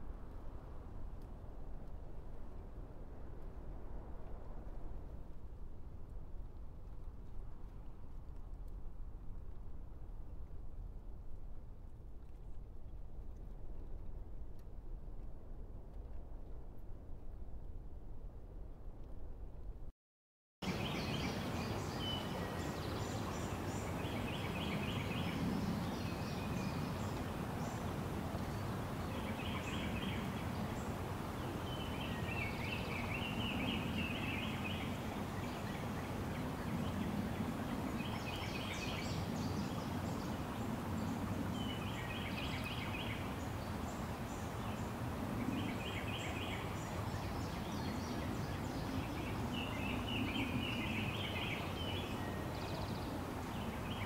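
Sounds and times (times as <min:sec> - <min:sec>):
steady background hiss: 0:20.6 - 0:54.0.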